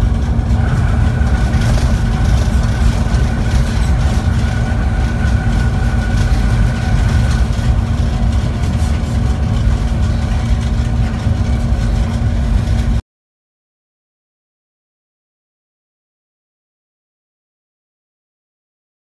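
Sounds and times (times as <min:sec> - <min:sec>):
high whine of passing train: 0:00.0 - 0:13.0
train rumbling at speed: 0:00.0 - 0:13.0.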